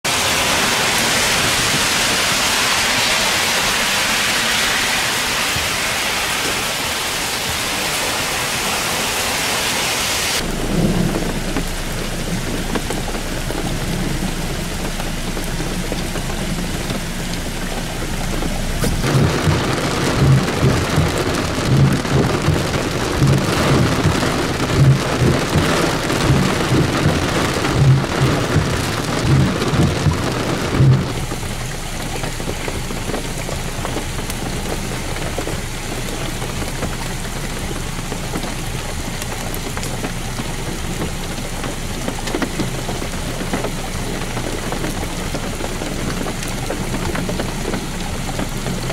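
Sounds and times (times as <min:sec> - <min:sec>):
heavy rain pouring: 0:00.0 - 0:48.9
low thumps: 0:18.2 - 0:31.4.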